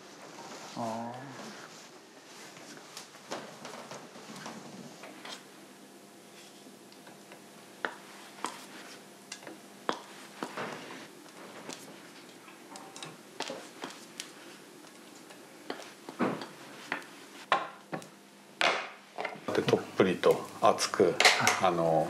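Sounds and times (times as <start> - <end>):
scrape on plate: 5.2 - 5.5.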